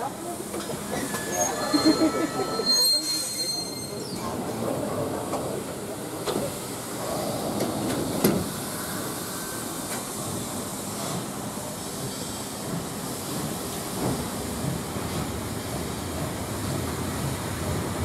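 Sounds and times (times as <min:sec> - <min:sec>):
train rolling with hiss: 0:00.0 - 0:18.0.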